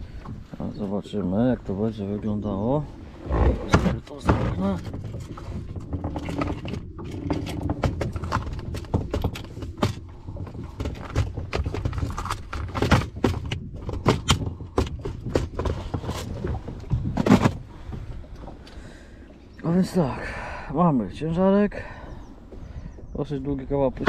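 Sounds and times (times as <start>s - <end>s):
low steady rumble: 0.0s - 24.0s
plastic tackle box clicks and knocks: 3.5s - 17.7s.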